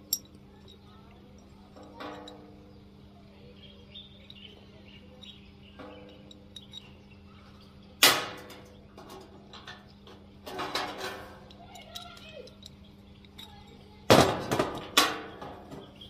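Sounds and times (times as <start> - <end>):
light metallic clinks: 0.0 - 2.9, 4.0 - 7.1, 11.4 - 14.1
metal clang: 1.8 - 2.6, 5.7 - 6.9, 8.0 - 9.8.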